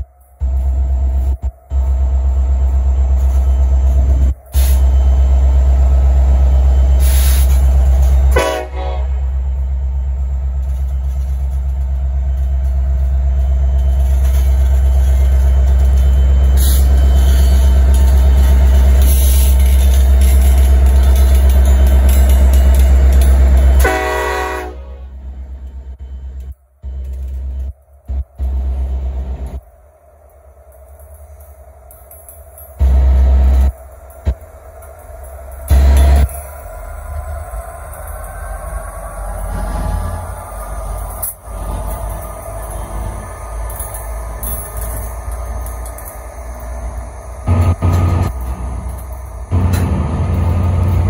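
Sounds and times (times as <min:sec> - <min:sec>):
locomotive engine rumble: 0:00.0 - 0:51.0
train horn: 0:08.3 - 0:09.4, 0:23.8 - 0:25.2.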